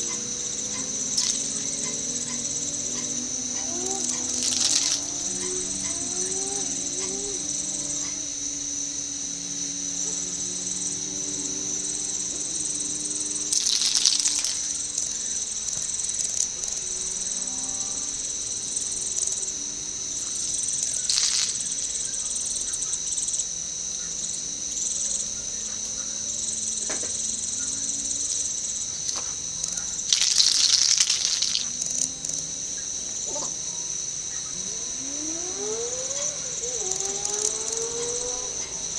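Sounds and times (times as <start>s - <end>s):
insects singing high-pitched: 0.0s - 38.9s
spray paint can hissing: 30.1s - 31.8s.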